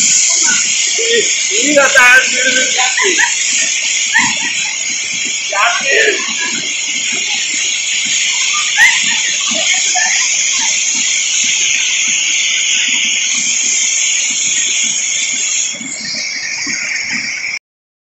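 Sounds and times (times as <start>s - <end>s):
waterfall splashing on rocks: 0.0s - 17.6s
faint children squealing: 0.4s - 13.0s.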